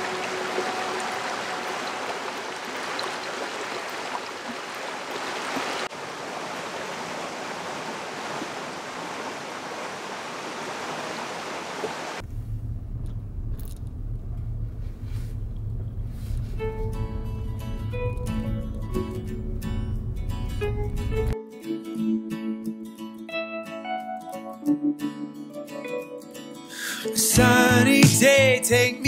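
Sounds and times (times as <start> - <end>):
water running over pebbles: 0.0 - 12.2
car driving heard from inside: 12.2 - 21.4.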